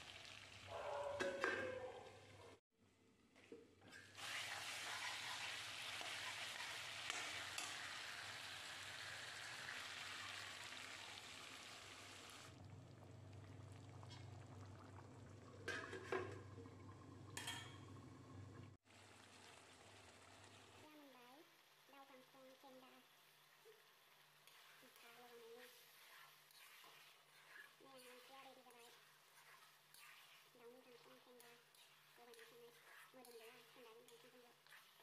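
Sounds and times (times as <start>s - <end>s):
curry sizzling: 0.0s - 1.5s, 3.7s - 35.0s
water pouring into pan: 4.0s - 17.7s.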